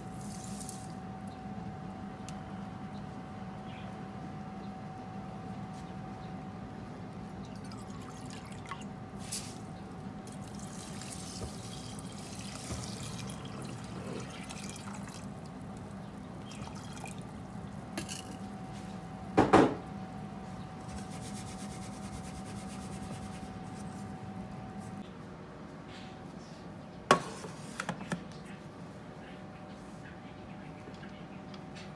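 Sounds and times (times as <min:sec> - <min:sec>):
steady low hum: 0:00.0 - 0:27.2
water pouring into pot: 0:10.4 - 0:15.5, 0:16.6 - 0:17.3.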